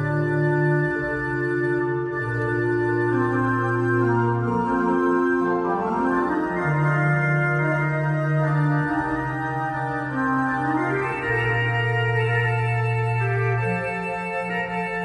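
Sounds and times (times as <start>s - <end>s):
church pipe organ playing: 0.0s - 15.0s.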